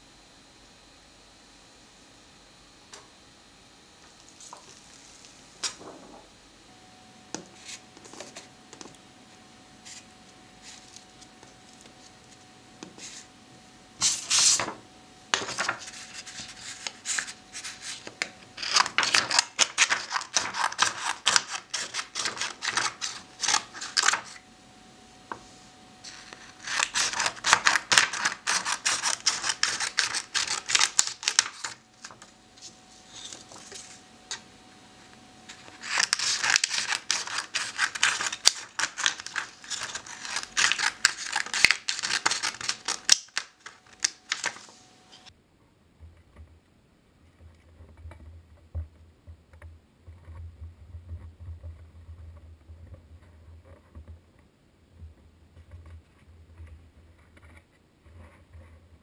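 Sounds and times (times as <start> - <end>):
scissors snipping photo paper: 15.4 - 24.4, 26.1 - 32.3, 35.5 - 44.7.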